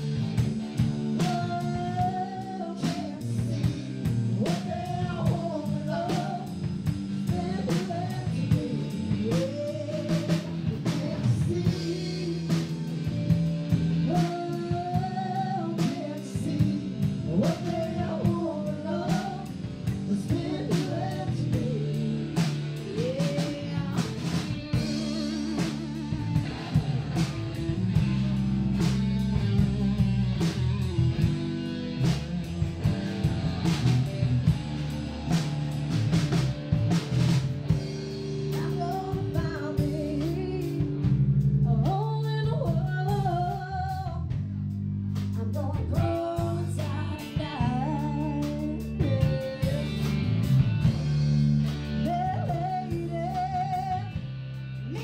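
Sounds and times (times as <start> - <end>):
live band playing: 0.0 - 55.0
woman singing: 1.1 - 13.4, 14.0 - 26.8, 38.5 - 44.4, 45.3 - 50.2, 52.0 - 54.2.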